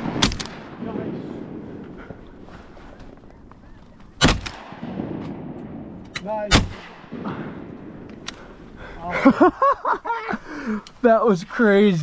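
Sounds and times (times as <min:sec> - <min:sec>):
shotgun blast with echo: 0:04.2 - 0:08.1.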